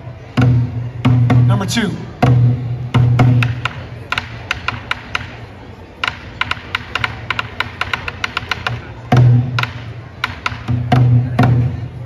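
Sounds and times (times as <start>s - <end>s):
deep drum beat: 0.4s - 5.2s
sharp wooden clicks and taps: 3.4s - 5.4s, 6.0s - 8.8s, 9.5s - 10.7s.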